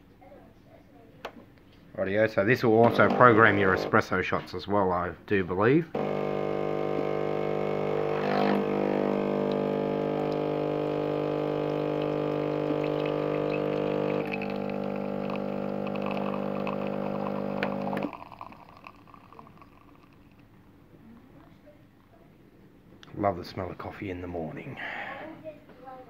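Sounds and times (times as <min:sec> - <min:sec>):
espresso machine pump humming: 0:02.8 - 0:04.0, 0:06.0 - 0:20.5
espresso pouring into mug: 0:02.8 - 0:04.0, 0:06.0 - 0:20.5.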